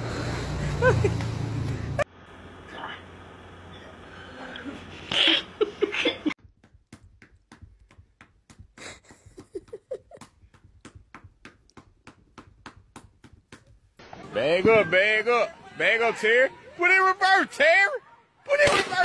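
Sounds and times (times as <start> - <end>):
person giggling: 0.6 - 1.2, 4.4 - 6.4, 8.7 - 10.4.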